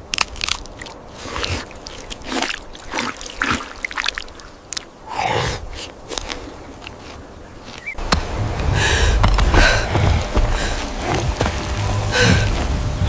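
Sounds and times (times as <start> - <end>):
water splashing: 0.0 - 13.0
water dripping into pool: 1.6 - 4.9
heavy breath: 5.1 - 6.6, 8.6 - 11.4, 12.1 - 12.7.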